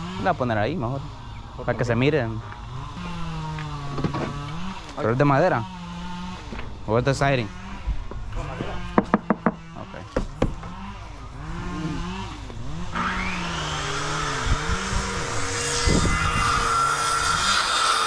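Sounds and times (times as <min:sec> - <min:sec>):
drone motors whining: 0:00.0 - 0:18.0
sharp knocks: 0:08.9 - 0:10.6.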